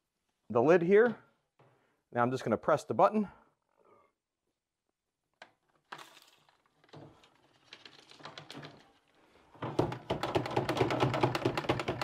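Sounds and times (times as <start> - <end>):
plastic canister tapping and rattling: 9.6 - 12.0.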